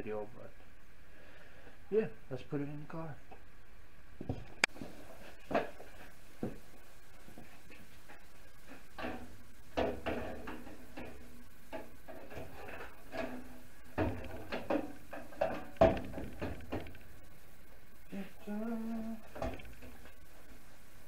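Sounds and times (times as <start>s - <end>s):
radiator knocks and scrapes: 4.2s - 17.2s, 19.3s - 20.6s.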